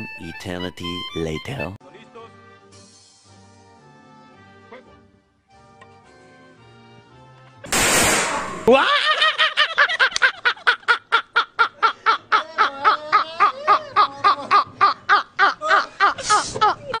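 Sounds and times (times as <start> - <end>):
men laughing: 8.6 - 17.0.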